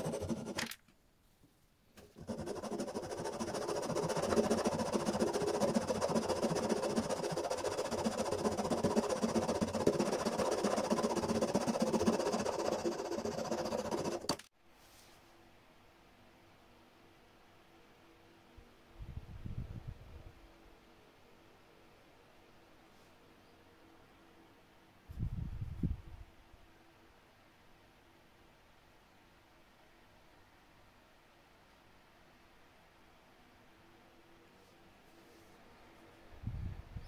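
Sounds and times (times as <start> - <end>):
hand saw cutting wood: 0.0 - 0.6, 2.2 - 14.5.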